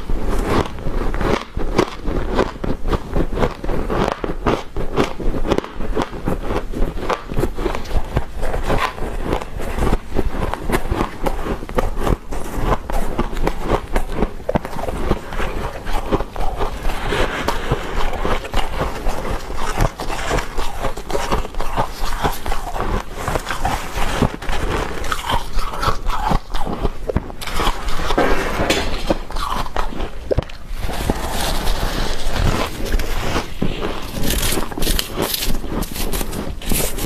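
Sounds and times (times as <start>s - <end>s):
frost crunching when chewed: 0.0s - 37.0s
metal spoon scraping frost: 14.6s - 37.0s.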